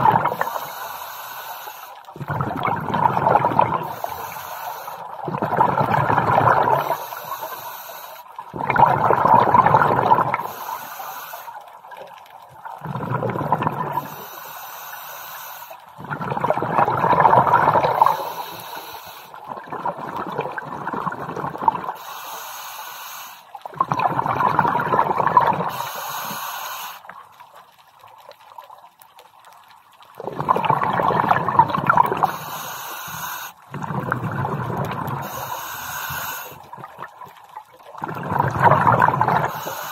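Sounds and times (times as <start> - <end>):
exhaled bubbles underwater: 0.0 - 14.6, 15.2 - 22.2, 23.5 - 39.9
regulator inhalation hiss: 0.3 - 2.0, 3.8 - 5.1, 6.8 - 8.3, 10.4 - 11.6, 14.0 - 15.8, 17.9 - 19.4, 22.0 - 23.5, 25.7 - 27.1, 32.2 - 33.6, 35.2 - 36.7, 39.4 - 39.9.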